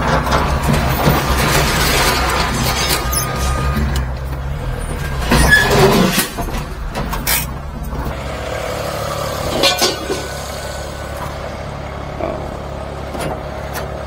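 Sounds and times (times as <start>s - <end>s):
engine idling: 6.6s - 14.0s
short metallic clatters: 9.4s - 10.4s.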